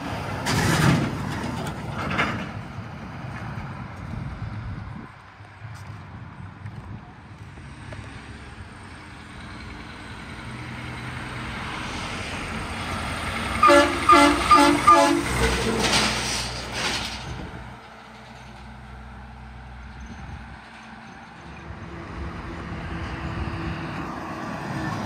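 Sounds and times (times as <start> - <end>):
truck diesel engine passing: 0.0 - 25.0
air horn blasts: 13.6 - 15.5.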